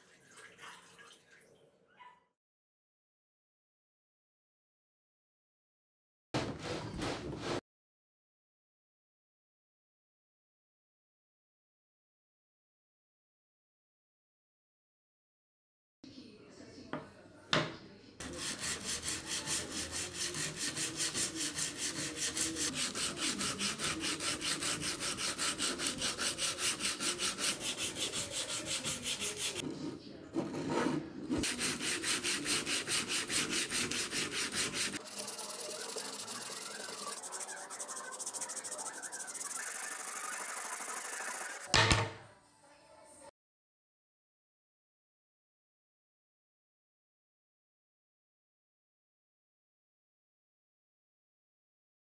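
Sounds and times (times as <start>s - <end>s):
sandpaper scraping wood: 18.2s - 29.6s, 30.4s - 41.7s.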